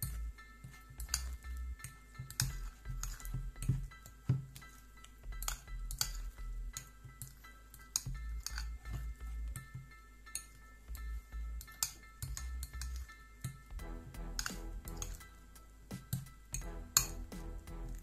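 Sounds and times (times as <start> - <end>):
metal spoon clinking on glass bowl: 0.0 - 4.8, 5.4 - 9.0
quiet background music: 0.0 - 18.0.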